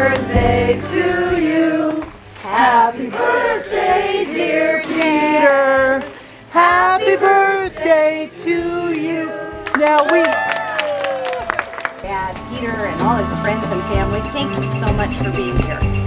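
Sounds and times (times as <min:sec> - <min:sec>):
group of voices singing: 0:00.0 - 0:09.7.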